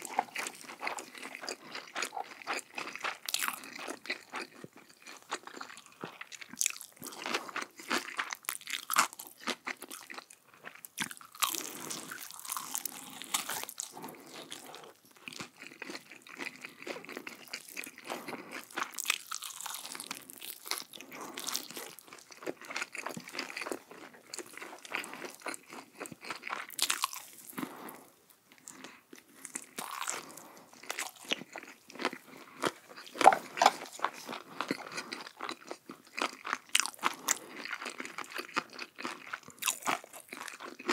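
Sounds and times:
person chewing crunchy food: 0.0s - 40.9s.

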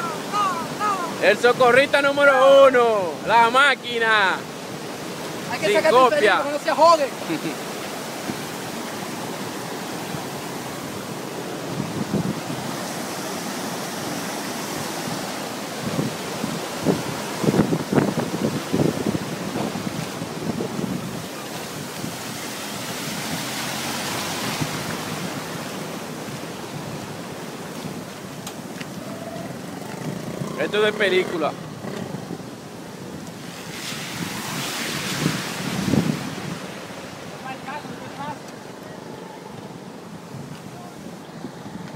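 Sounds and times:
fast water rushing: 0.0s - 41.9s
wind buffeting microphone: 7.9s - 37.2s.

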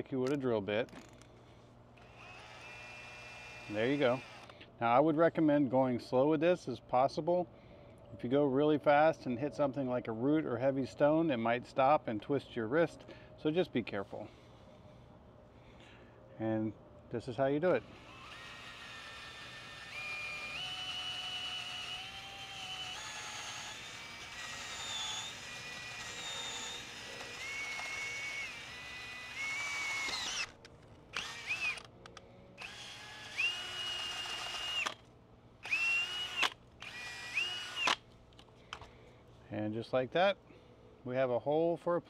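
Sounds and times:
drill motor whine: 2.0s - 4.5s, 17.7s - 30.6s, 31.2s - 31.9s, 32.6s - 35.0s, 35.6s - 38.0s.

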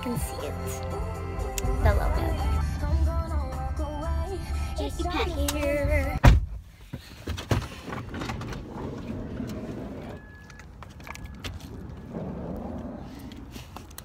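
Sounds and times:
person climbing out of vehicle: 5.6s - 14.0s.

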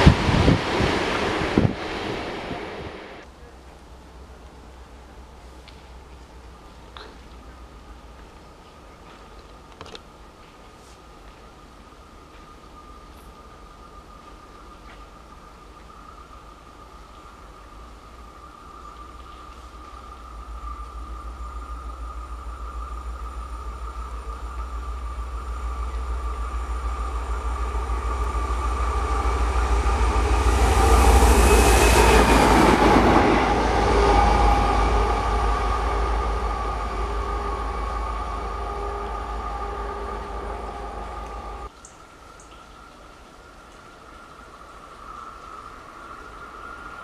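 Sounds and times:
train wheel noise: 0.0s - 3.3s, 19.0s - 41.7s
diesel locomotive passing: 0.0s - 6.8s, 18.4s - 41.7s.

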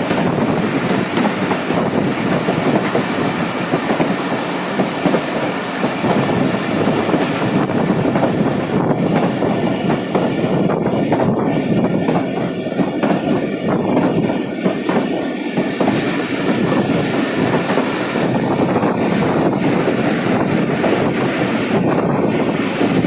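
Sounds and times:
rail-joint clicks: 0.0s - 23.0s
train wheels rumbling on track: 0.0s - 23.0s.

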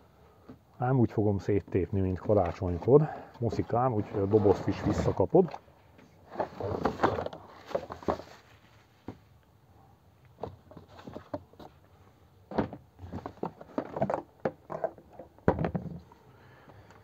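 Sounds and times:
cardboard box being opened: 6.2s - 8.5s.

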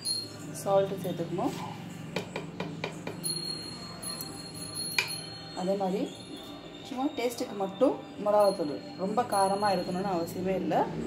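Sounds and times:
high bell-like ringing tone: 0.0s - 1.5s, 3.0s - 10.8s
steel spoon clinking steel bowl: 2.2s - 6.8s.

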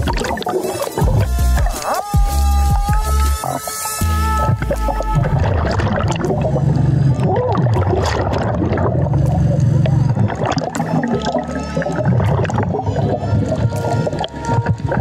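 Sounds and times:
bubbling: 0.0s - 2.0s, 2.7s - 15.0s
steady low underwater drone: 4.1s - 15.0s.

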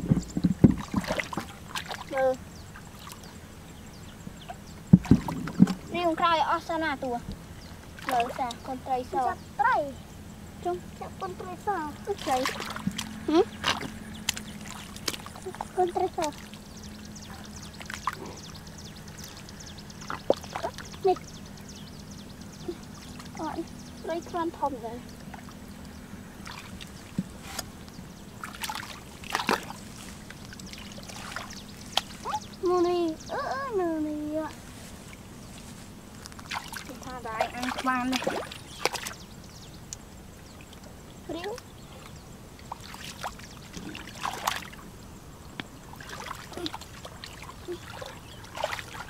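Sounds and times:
faint steady hum: 0.0s - 49.0s
water sloshing and splashing: 0.0s - 49.0s
water dripping: 4.3s - 9.4s, 10.6s - 21.4s, 22.4s - 33.8s, 36.1s - 44.8s.

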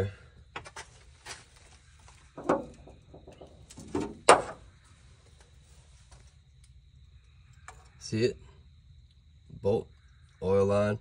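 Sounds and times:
rustle: 3.5s - 6.7s.

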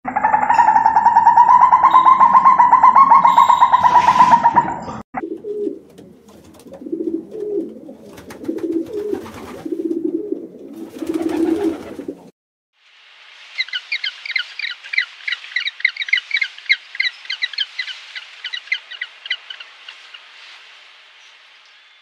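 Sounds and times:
pigeons cooing: 0.1s - 12.3s.

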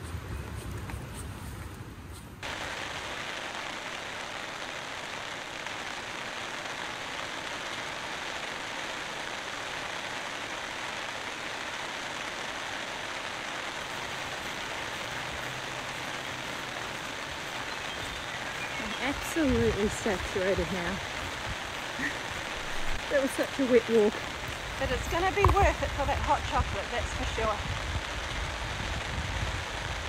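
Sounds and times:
heavy rain: 2.4s - 30.0s.

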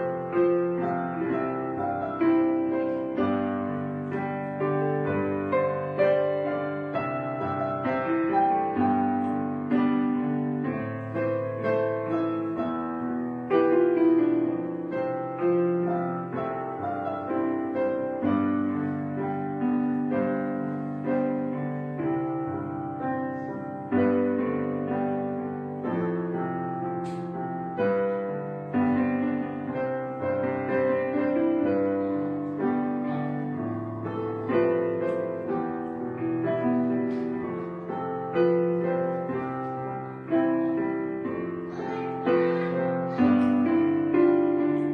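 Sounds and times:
piano music: 0.0s - 44.9s.

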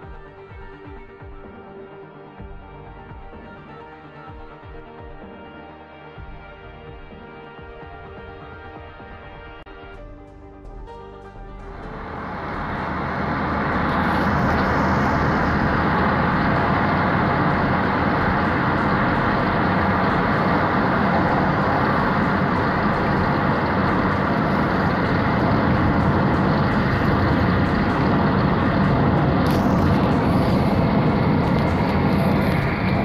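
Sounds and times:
car road and engine noise: 11.6s - 33.0s.

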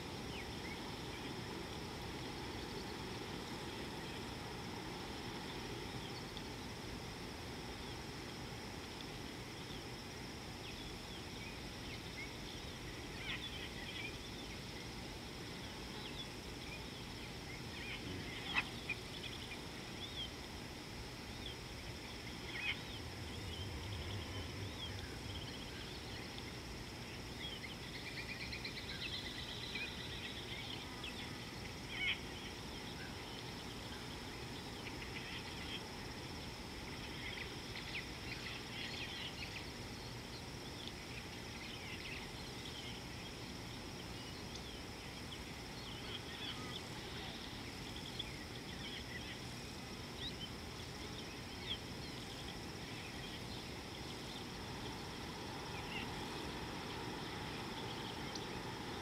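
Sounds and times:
insect hum and hiss: 0.0s - 59.0s.

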